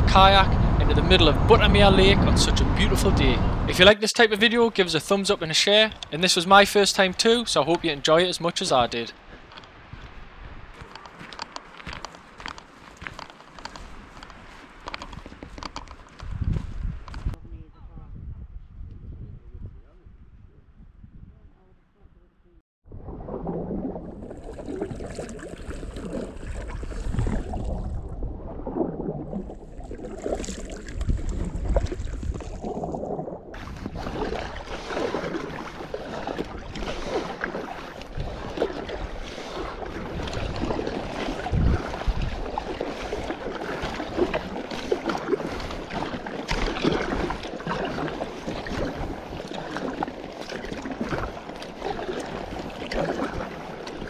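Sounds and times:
wind on microphone: 0.0 - 3.9, 9.2 - 54.0
paddle strokes splashing water: 4.8 - 17.2, 23.0 - 54.0.

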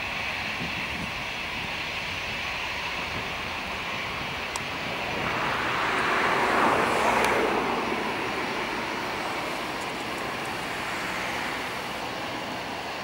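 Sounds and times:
jet engines rushing: 0.0 - 13.0.

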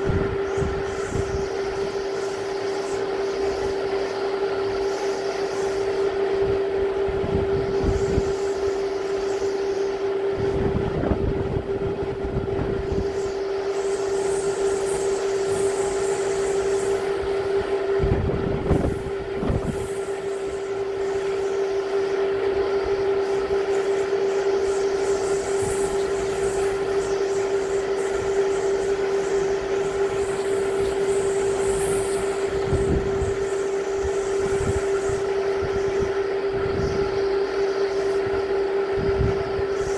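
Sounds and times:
strong wind blowing: 0.0 - 1.8, 10.3 - 13.1, 17.9 - 19.9
wind gusts buffeting microphone: 0.0 - 2.0, 10.2 - 13.2, 17.0 - 20.0, 29.8 - 37.3, 38.2 - 39.9
steady droning tone: 0.0 - 39.9.

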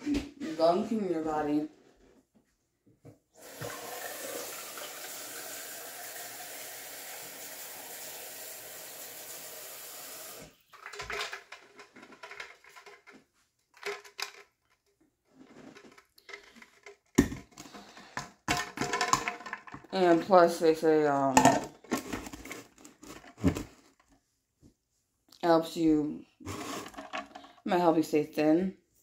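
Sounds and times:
water running into container: 3.4 - 11.1, 26.5 - 27.5
clinks and knocks of kitchen things: 10.7 - 13.2, 13.8 - 14.6, 15.6 - 20.3, 21.3 - 23.8, 26.5 - 27.6.

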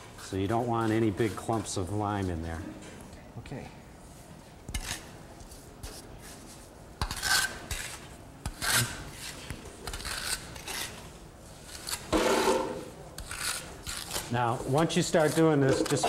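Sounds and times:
trowel scraping wet plaster: 7.0 - 16.0.

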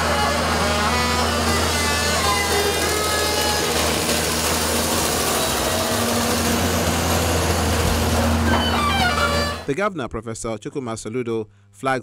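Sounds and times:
excavator engine humming: 0.0 - 9.7.

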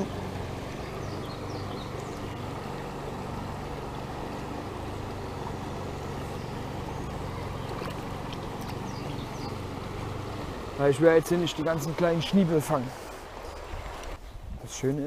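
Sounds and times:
brook rushing over stones: 0.0 - 14.2.

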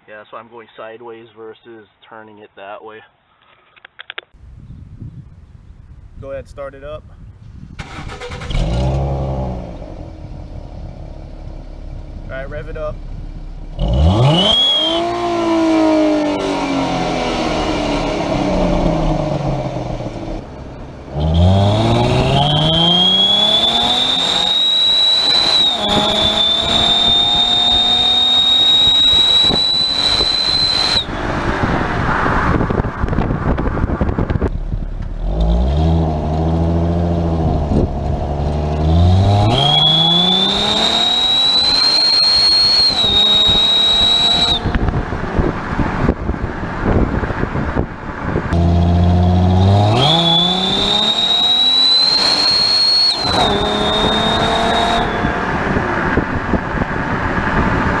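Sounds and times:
road noise: 3.2 - 58.0
car engine accelerating: 7.8 - 58.0
exhaust turbo whistle: 13.8 - 19.2, 21.2 - 31.8, 39.0 - 45.0, 48.6 - 56.0.

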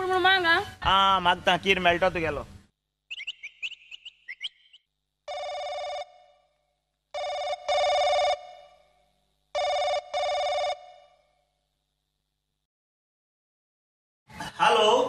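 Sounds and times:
quick chirping: 3.1 - 4.9
telephone ringing: 5.3 - 6.5, 7.2 - 8.9, 9.6 - 11.3.

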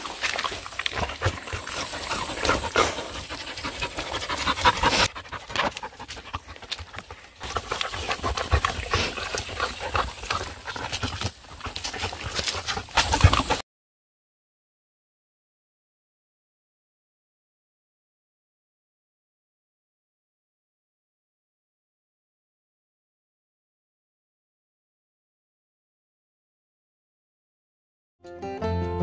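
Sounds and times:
dogs chewing and ripping grass: 0.0 - 13.6
dogs panting: 0.0 - 13.6.

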